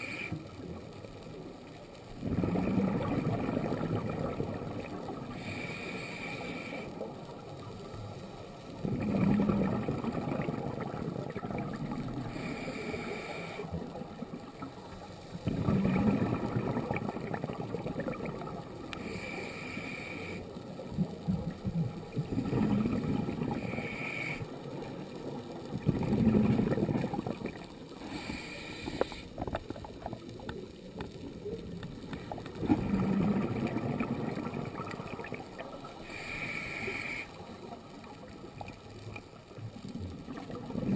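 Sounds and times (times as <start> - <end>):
regulator inhale hiss: 0.0 - 0.6, 5.3 - 7.1, 12.2 - 13.8, 18.9 - 20.6, 23.5 - 24.6, 27.9 - 29.4, 36.0 - 37.5
exhaust bubbles rushing: 15.5 - 18.5, 25.8 - 27.6, 32.6 - 35.3.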